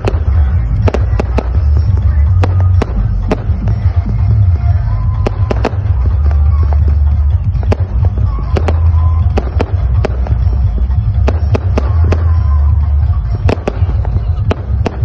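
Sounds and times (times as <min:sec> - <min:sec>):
bass-heavy music on sound system: 0:00.0 - 0:15.0
fireworks bangs: 0:00.0 - 0:15.0.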